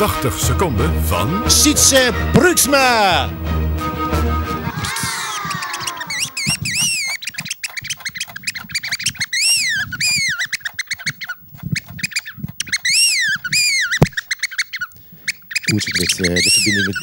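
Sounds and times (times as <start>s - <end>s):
whistled bird calls: 4.7s - 17.0s
bird call clicking chatter: 4.8s - 17.0s.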